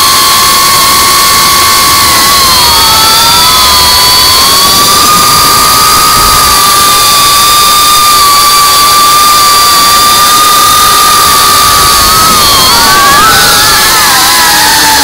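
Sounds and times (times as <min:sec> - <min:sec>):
drone motors whining: 0:00.0 - 0:15.0
rushing wind hiss: 0:00.0 - 0:15.0.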